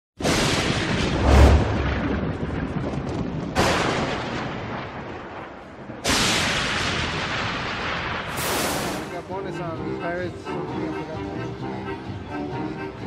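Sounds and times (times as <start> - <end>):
thunder-like booms: 0.2 - 9.1.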